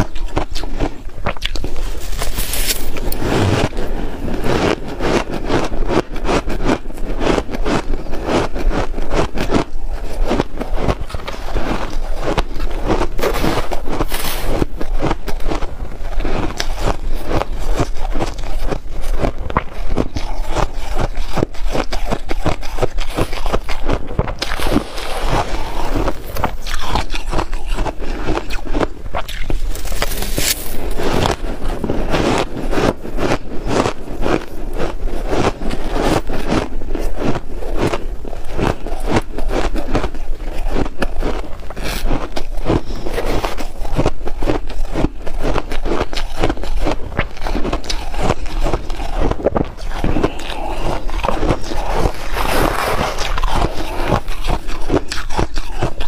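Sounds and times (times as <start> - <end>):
shaved ice being chewed: 0.0 - 56.0
metal spoon scraping ice: 1.6 - 3.6, 11.2 - 14.6, 29.4 - 31.7, 44.9 - 56.0.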